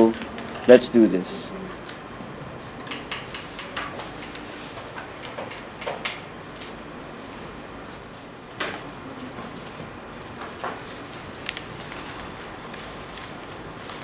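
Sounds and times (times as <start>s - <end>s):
room noise: 0.0s - 14.0s
paper rustling: 6.5s - 14.0s.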